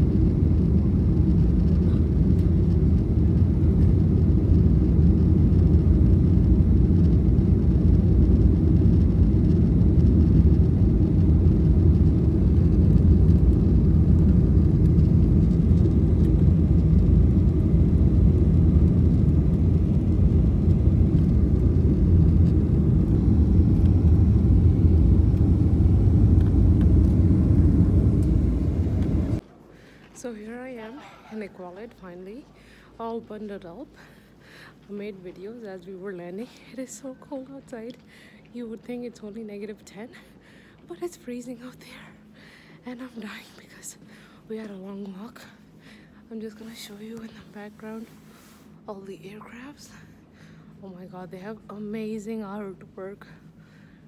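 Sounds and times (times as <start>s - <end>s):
airliner cabin rumble: 0.0s - 29.5s.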